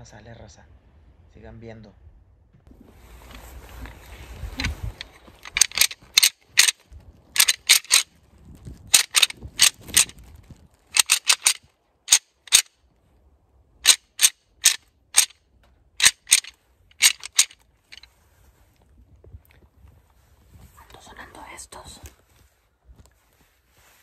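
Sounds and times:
deer rattling call clacks: 4.6 - 8.1, 8.9 - 10.3, 10.9 - 12.7, 13.8 - 15.4, 16.0 - 18.1.

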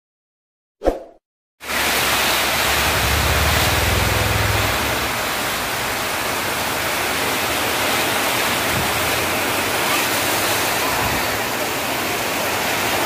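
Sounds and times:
heavy rain pouring: 1.6 - 13.0
low rumble: 2.0 - 7.2.

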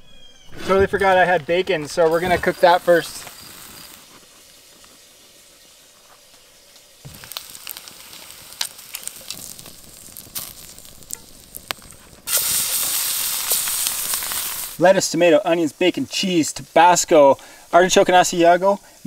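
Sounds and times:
fat popping and crackling: 0.5 - 14.9
bacon sizzling in pan: 1.8 - 19.0.

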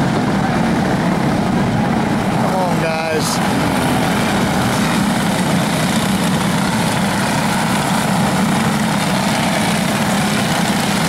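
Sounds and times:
racing kart engines buzzing: 0.0 - 11.0.

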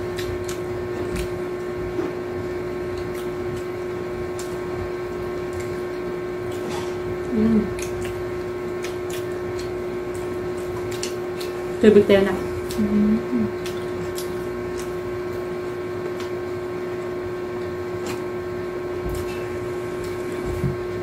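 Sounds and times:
mechanical hum of appliance: 0.0 - 21.0
small clicks of eating: 0.1 - 2.1, 2.9 - 11.8, 12.6 - 15.4, 16.0 - 16.4
person humming: 7.3 - 7.8, 12.7 - 13.6.

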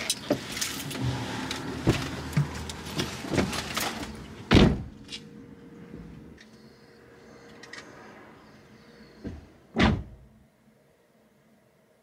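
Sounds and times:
car door shutting with a thud: 4.5 - 5.0, 9.2 - 10.2.

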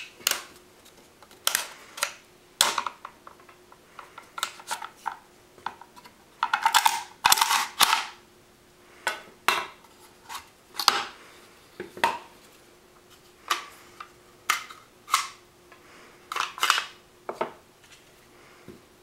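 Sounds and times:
metal parts clattering: 6.4 - 8.1.

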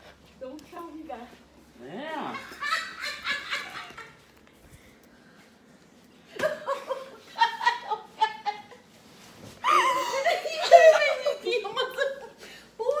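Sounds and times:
woman laughing: 6.4 - 8.8, 9.6 - 13.0.

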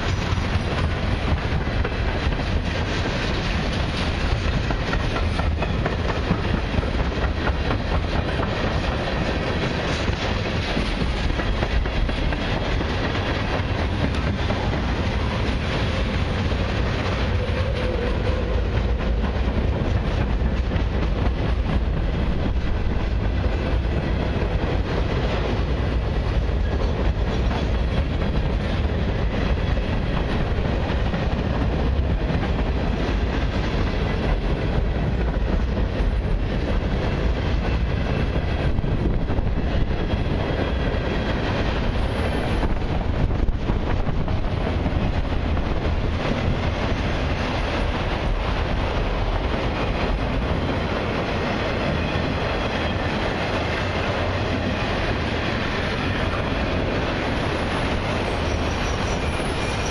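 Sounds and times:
freight train rolling past: 0.0 - 59.9.

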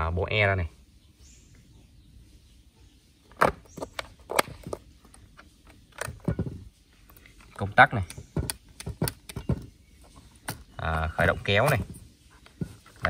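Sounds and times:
plastic clicks and knocks: 3.3 - 9.8.

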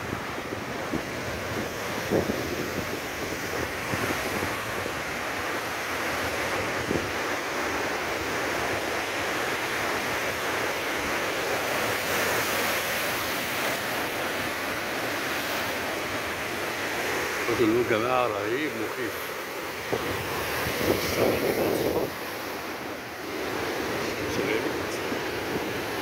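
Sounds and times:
wind buffeting microphone: 0.0 - 7.4, 19.8 - 26.0
surf breaking on shore: 0.0 - 26.0.

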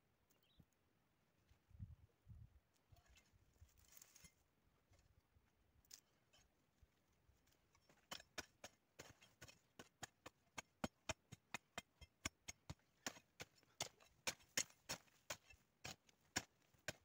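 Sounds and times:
hoe chopping into dry soil: 7.8 - 17.0.

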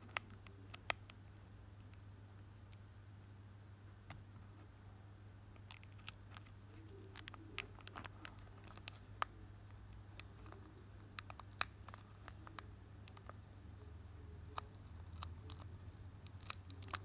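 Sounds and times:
steady low hum: 0.0 - 17.0
foil wrapper crinkling and tearing: 5.6 - 9.3, 15.0 - 17.0.

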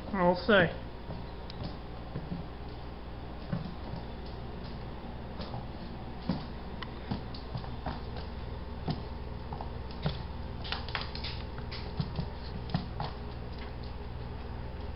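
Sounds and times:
steady low hum: 0.0 - 14.9
puppy claws clicking on wood floor: 7.1 - 14.1.

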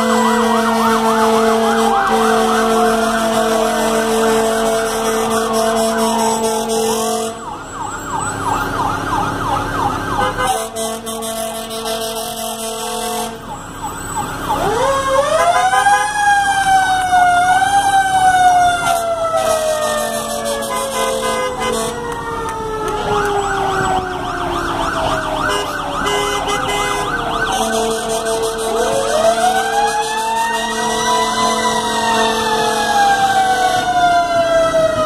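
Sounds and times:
siren winding up and down: 0.0 - 10.3, 13.5 - 35.0
electronic yelp sirens: 0.0 - 35.0
steady blaring siren tone: 0.0 - 35.0.

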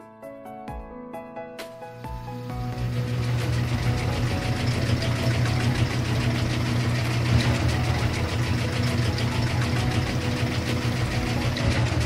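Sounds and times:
electric winch motor humming: 2.0 - 12.0
fast fine ticking: 2.7 - 12.0.

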